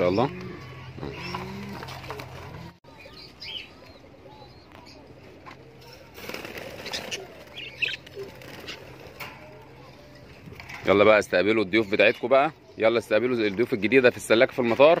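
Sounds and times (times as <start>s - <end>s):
wings fluttering and flapping: 1.2s - 2.8s, 5.5s - 9.8s
budgerigars chirping: 7.6s - 8.0s.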